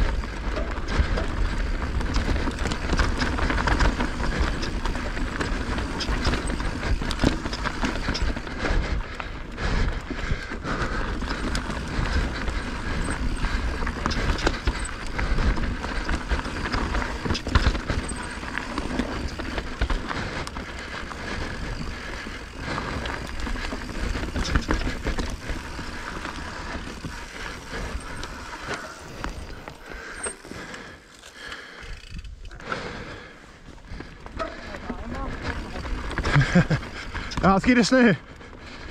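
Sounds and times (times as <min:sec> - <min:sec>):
bike rattling over bumps: 0:00.0 - 0:38.9.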